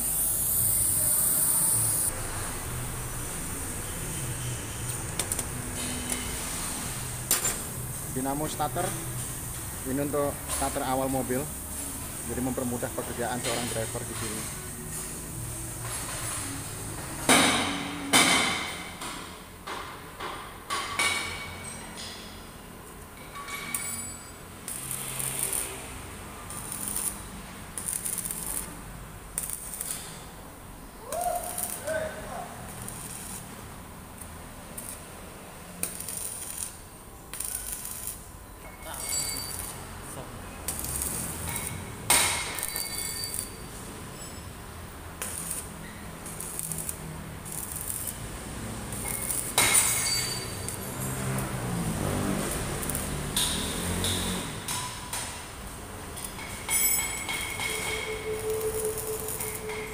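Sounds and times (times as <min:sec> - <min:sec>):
arc welder crackling: 0:00.0 - 0:19.2, 0:23.7 - 0:59.9
metal tools clinking on engine: 0:23.2 - 0:25.4, 0:38.6 - 0:40.0, 0:41.4 - 0:44.6, 0:49.0 - 0:51.6, 0:56.2 - 0:59.9.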